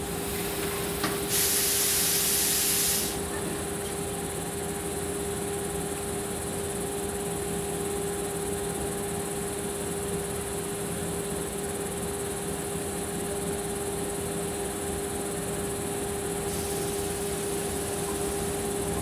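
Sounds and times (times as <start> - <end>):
train equipment humming: 0.0 - 4.6, 16.1 - 19.0
high hiss: 0.1 - 3.3, 16.5 - 19.0
insects chirring: 16.4 - 19.0.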